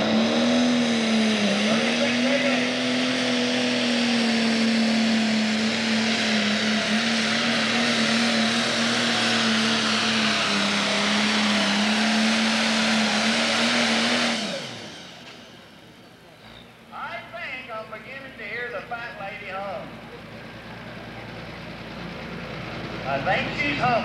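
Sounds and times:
engine shutting down: 0.0s - 16.7s
tractor diesel engine under load: 0.0s - 24.0s.

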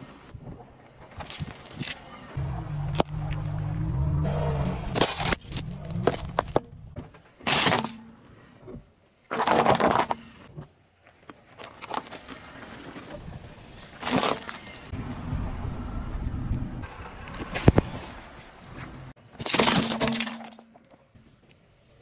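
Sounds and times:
plastic crushed under car tyre: 4.8s - 6.7s.

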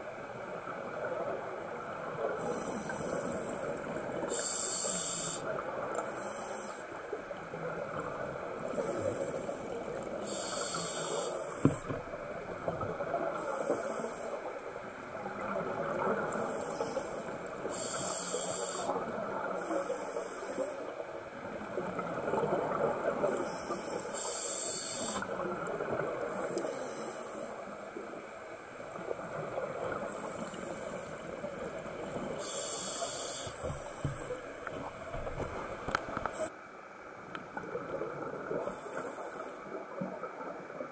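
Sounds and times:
scuba regulator hiss: 4.3s - 5.5s, 6.1s - 6.8s, 10.2s - 11.6s, 13.4s - 14.4s, 16.5s - 19.0s, 23.4s - 25.3s, 32.4s - 34.0s.

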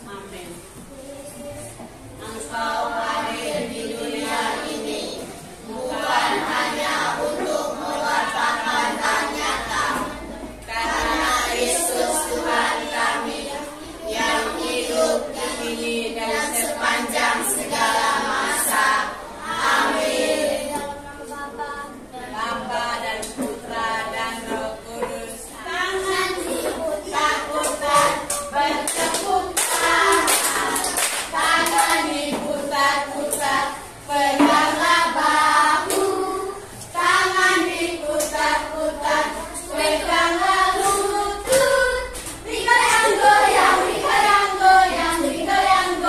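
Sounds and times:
children and woman singing: 0.8s - 46.0s
handclaps: 27.6s - 32.0s.

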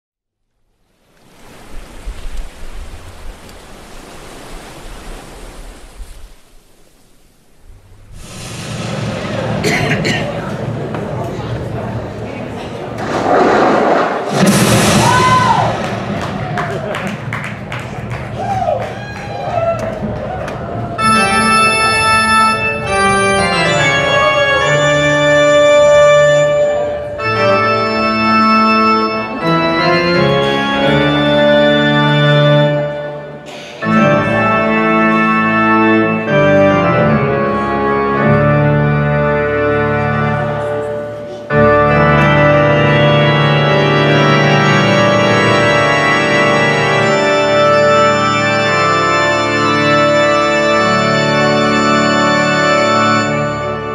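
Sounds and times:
organ playing held chords: 21.0s - 53.9s.

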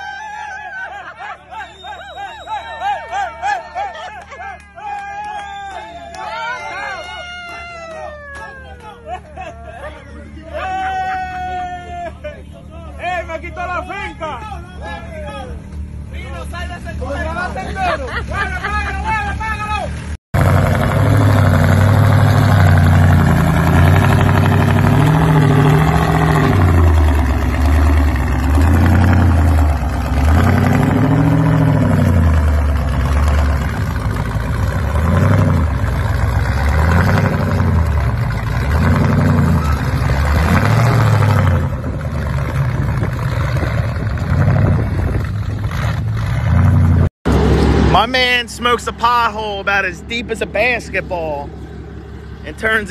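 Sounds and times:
truck engine revving: 12.9s - 52.9s.

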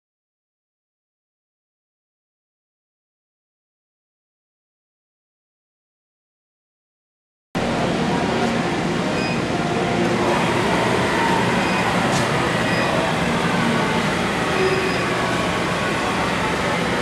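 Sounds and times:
honing machine running: 9.0s - 17.0s.

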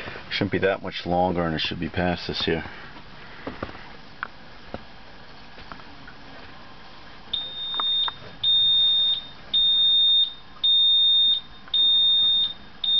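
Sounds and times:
electronic beeps: 7.4s - 12.9s.

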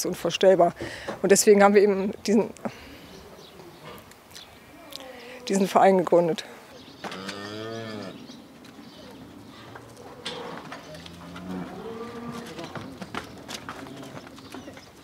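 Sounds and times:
cows mooing: 7.0s - 8.3s, 9.6s - 14.2s.

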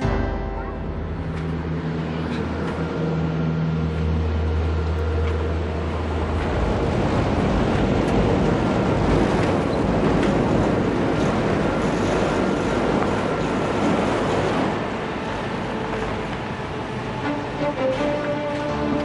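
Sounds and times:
low music chords: 0.0s - 7.7s, 17.2s - 19.0s.

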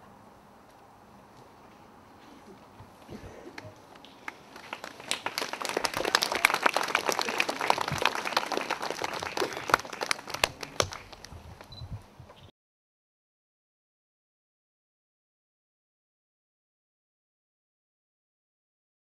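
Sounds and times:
crowd applauding: 3.4s - 11.4s.

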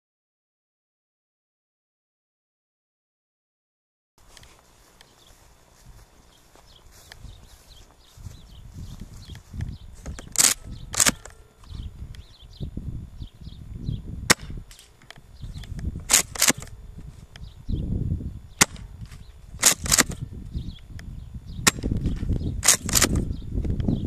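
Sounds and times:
wind on microphone: 7.0s - 24.0s
airsoft shotgun pops and clacks: 10.1s - 11.4s, 14.3s - 15.2s, 16.1s - 16.7s, 18.6s - 18.9s, 19.6s - 20.2s, 21.7s - 23.2s.

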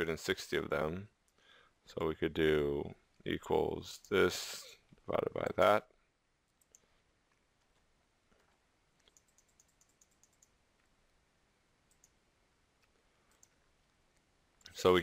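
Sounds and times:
mouse clicks: 8.4s - 10.6s, 11.9s - 12.2s.

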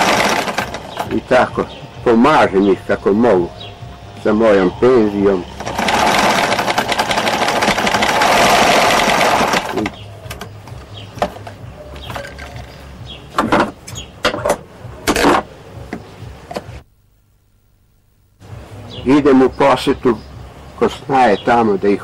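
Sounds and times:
sewing machine stitching: 0.0s - 1.1s, 5.6s - 10.0s.

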